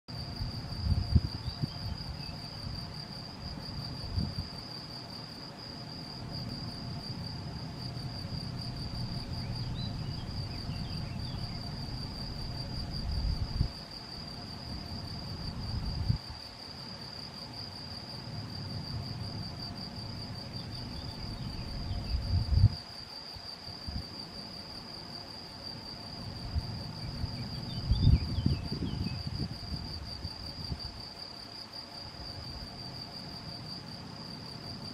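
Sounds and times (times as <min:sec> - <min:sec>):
cricket singing: 0:00.1 - 0:34.9.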